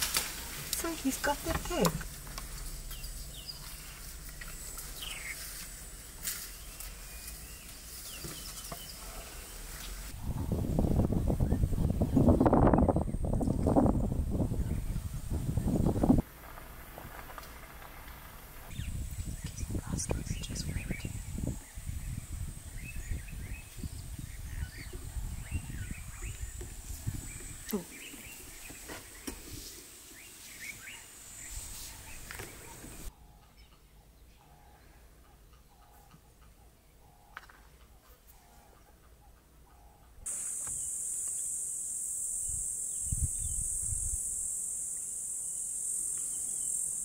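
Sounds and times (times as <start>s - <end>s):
birds chirping: 0.0s - 10.5s, 17.5s - 41.5s
high-pitched insect whine: 40.3s - 47.0s.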